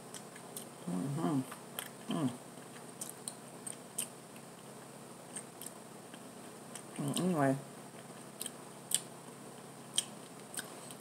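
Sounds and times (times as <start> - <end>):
close chewing: 0.0 - 0.7, 1.5 - 7.3, 9.9 - 11.0
hummed voice sounds: 0.8 - 2.4.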